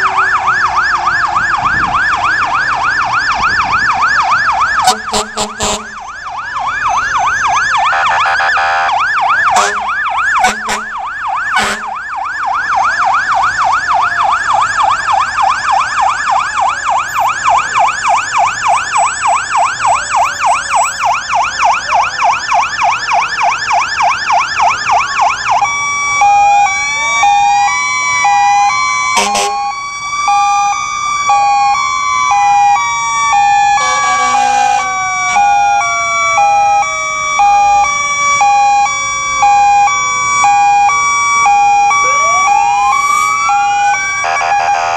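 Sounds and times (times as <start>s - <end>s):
high-low siren tone: 0.0s - 44.9s
siren electronic yelp: 0.0s - 44.9s
siren wailing: 0.0s - 44.9s
fire engine horn blasts: 4.8s - 6.1s, 7.8s - 12.0s, 29.1s - 29.8s, 33.3s - 36.8s, 42.0s - 44.9s.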